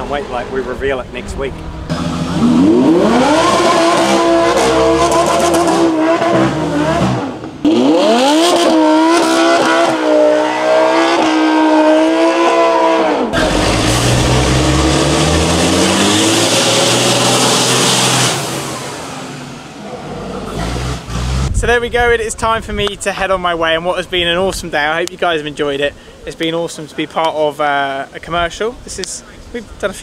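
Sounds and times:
car engine revving: 0.0 - 21.7
truck engine accelerating: 0.0 - 21.7.

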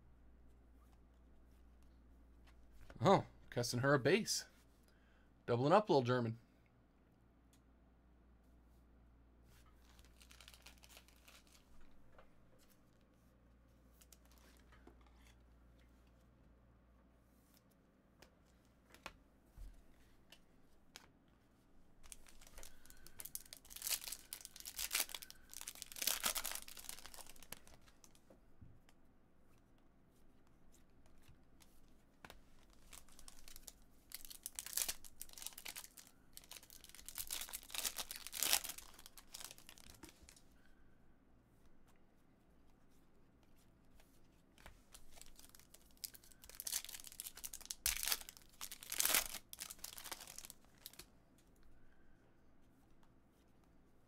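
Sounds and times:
card pack wrappers tearing: 10.0 - 11.7, 22.1 - 27.7, 32.8 - 40.1, 45.1 - 51.0.

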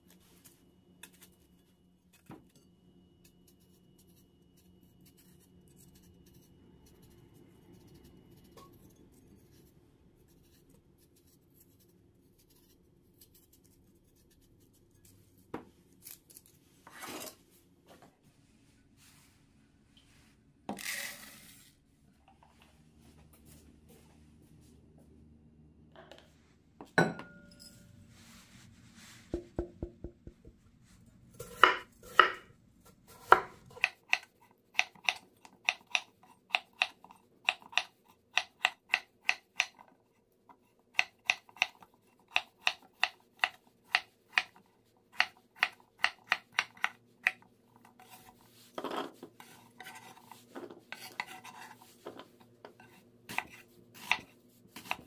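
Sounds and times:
knife chopping on wooden board: 31.4 - 32.4, 33.2 - 36.0, 53.3 - 55.0.

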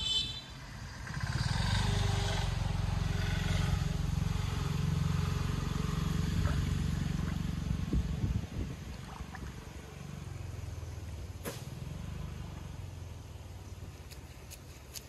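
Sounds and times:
engine running with pulsing rumble: 0.7 - 14.6.

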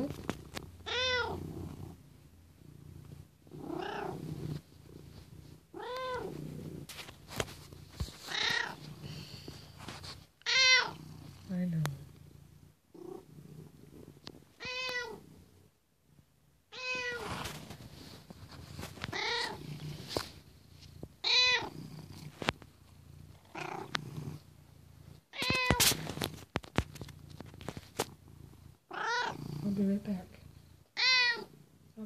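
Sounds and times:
cat purring: 0.0 - 32.0
cat meowing: 0.8 - 1.4, 5.8 - 6.3, 8.3 - 8.8, 10.4 - 11.0, 14.6 - 15.2, 16.7 - 17.4, 19.1 - 19.6, 21.2 - 21.7, 31.0 - 31.5.

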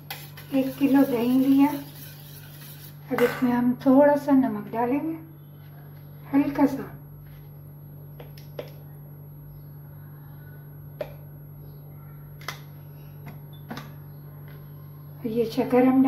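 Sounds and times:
steel bowls and utensils clicking: 0.0 - 3.2
steady low hum: 0.0 - 16.0.

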